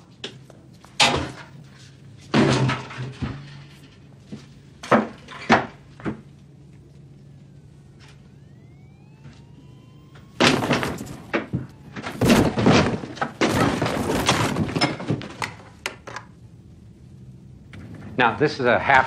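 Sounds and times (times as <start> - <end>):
ceiling tiles knocking and scraping: 10.5 - 16.2.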